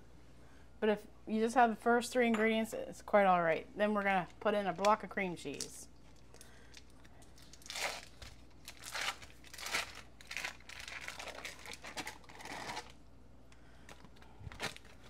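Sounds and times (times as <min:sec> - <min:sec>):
foil wrapper crinkling: 0:06.7 - 0:13.0, 0:13.9 - 0:15.0.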